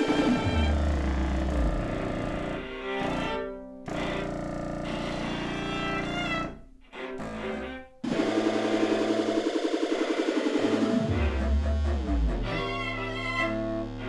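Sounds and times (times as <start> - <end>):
synthesizer: 0.0 - 6.5, 7.2 - 14.0
viola long bowed notes: 0.0 - 8.2, 10.9 - 14.0
contrabassoon: 0.0 - 9.3, 10.6 - 14.0.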